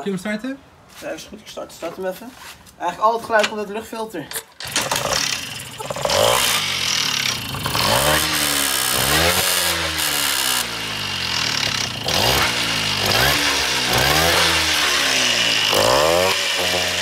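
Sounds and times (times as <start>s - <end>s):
moped engine revving: 4.6s - 17.0s.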